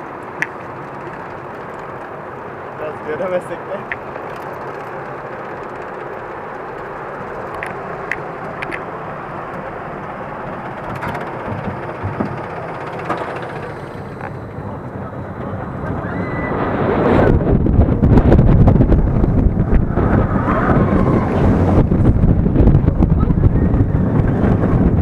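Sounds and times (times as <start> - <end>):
sharp track clicks: 0.0 - 14.6
roller coaster rumbling on track: 0.0 - 25.0
wind noise: 0.0 - 25.0.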